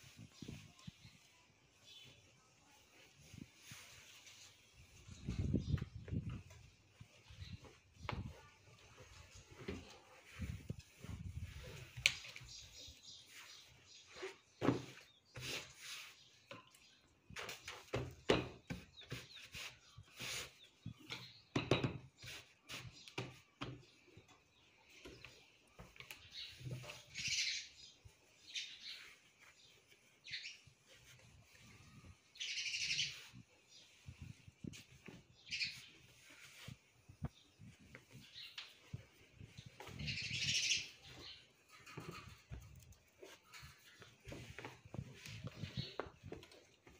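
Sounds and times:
birds chirping: 0:04.3 - 0:46.9
fabric scraping and rustling: 0:07.2 - 0:16.3.

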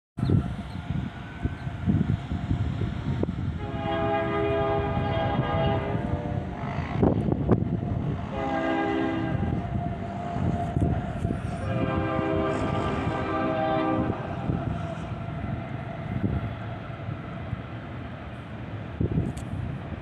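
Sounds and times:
distant train horn blasts: 0:03.5 - 0:17.4.

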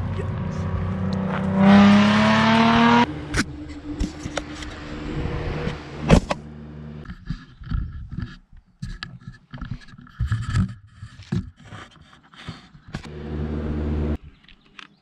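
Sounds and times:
engine humming inside cabin: 0:00.0 - 0:07.0, 0:13.1 - 0:14.2
engine revving: 0:00.0 - 0:07.0, 0:13.0 - 0:14.2.

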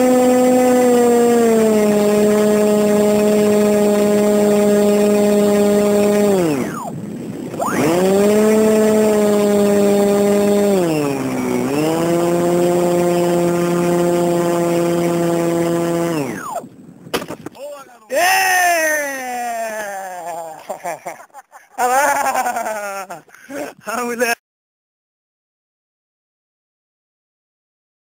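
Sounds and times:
model aircraft motor buzzing: 0:00.0 - 0:16.9.

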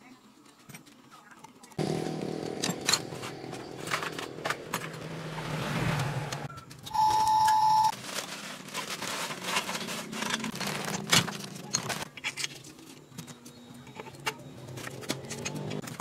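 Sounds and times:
objects being handled: 0:06.5 - 0:16.0
short steady beep: 0:06.9 - 0:07.9.

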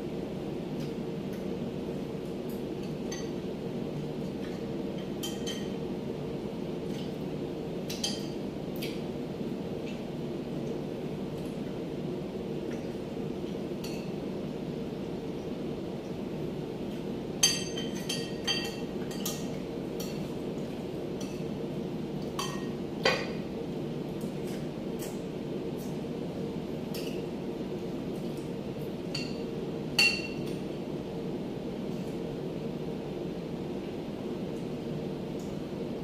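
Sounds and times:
cutlery clinking against plates: 0:17.4 - 0:20.3.

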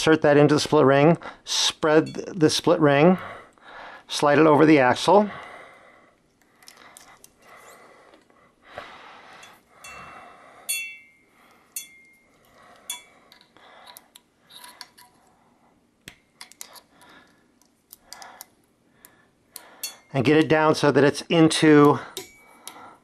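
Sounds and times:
short metallic rings: 0:09.4 - 0:13.2.

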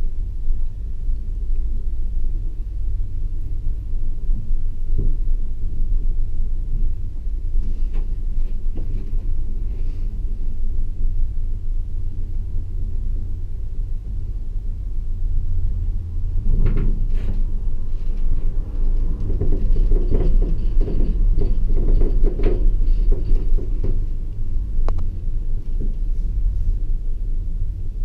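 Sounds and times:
gondola cabin rumbling: 0:00.0 - 0:28.0
rapid rattling knocks: 0:18.2 - 0:24.2.

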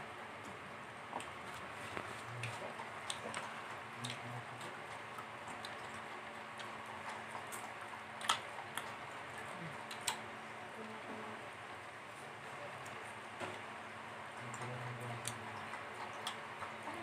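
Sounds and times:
chewing and mouth smacks: 0:01.2 - 0:10.3, 0:14.4 - 0:17.0.

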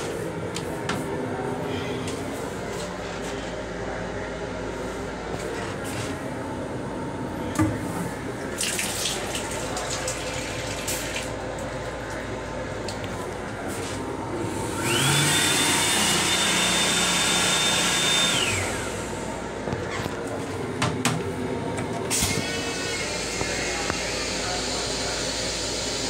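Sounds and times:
faucet water running: 0:08.6 - 0:11.8
hand dryer blower whining: 0:14.5 - 0:19.3.

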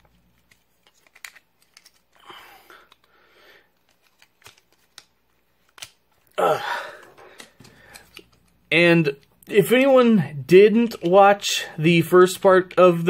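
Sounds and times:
plastic toy parts clicking: 0:00.8 - 0:02.2, 0:03.8 - 0:06.0.

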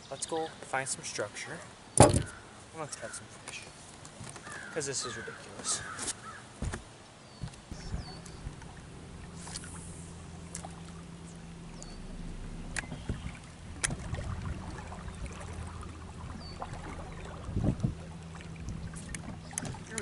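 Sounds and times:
loud bump: 0:02.0 - 0:02.3, 0:07.7 - 0:20.0
boat motor humming: 0:02.0 - 0:02.6, 0:04.3 - 0:20.0.

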